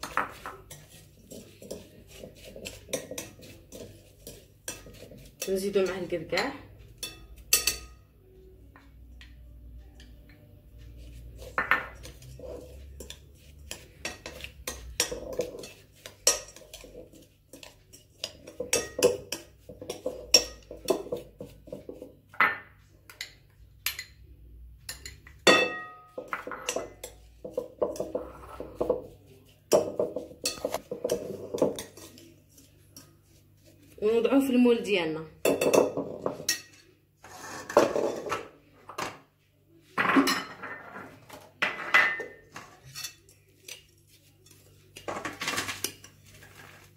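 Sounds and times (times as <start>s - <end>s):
metal spoon stirring crumbs: 0.0s - 8.0s, 9.8s - 38.5s, 40.8s - 46.9s
spoon clinking against glass bowl: 0.0s - 8.0s, 11.4s - 21.2s, 22.4s - 24.2s, 24.9s - 28.2s, 35.4s - 36.9s.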